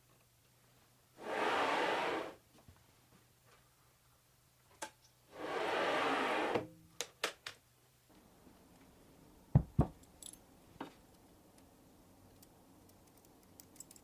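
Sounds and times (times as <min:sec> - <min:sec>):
saw carriage sliding: 0:01.2 - 0:02.4, 0:05.3 - 0:06.6.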